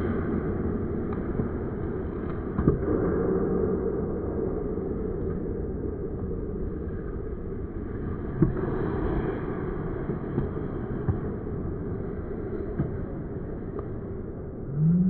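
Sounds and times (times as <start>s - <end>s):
ice rink rumble: 0.0s - 15.0s
hockey sticks knocking puck: 2.2s - 3.1s.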